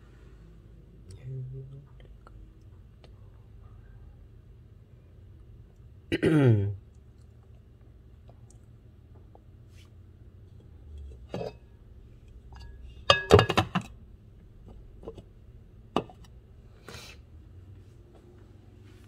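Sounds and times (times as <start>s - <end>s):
glass lid clinking and rattling: 11.2s - 11.6s, 12.5s - 13.9s.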